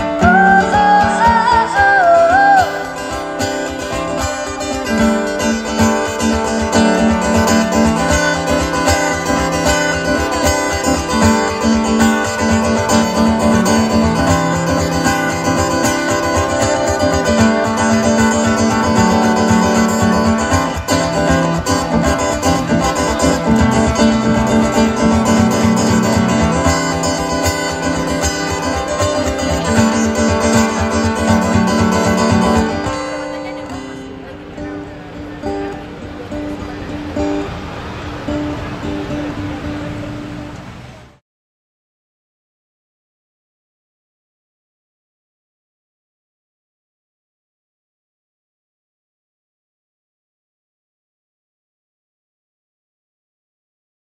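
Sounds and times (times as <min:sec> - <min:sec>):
woman singing: 0:00.0 - 0:03.2
acoustic guitar picked and strummed: 0:00.0 - 0:41.2.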